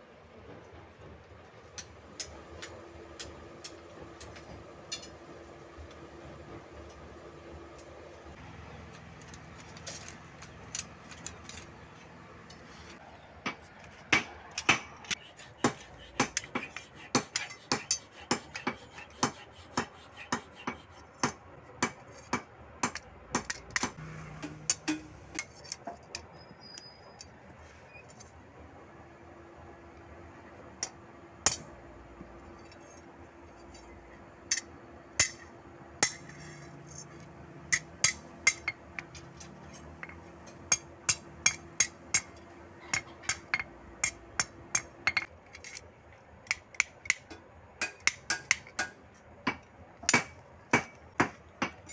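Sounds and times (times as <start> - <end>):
hammer striking metal: 13.4 - 25.6, 47.8 - 51.9.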